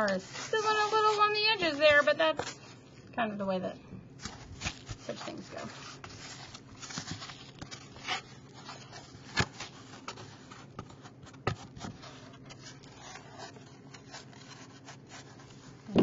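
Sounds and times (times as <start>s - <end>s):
plastic scoop scraping sand: 0.0s - 2.6s.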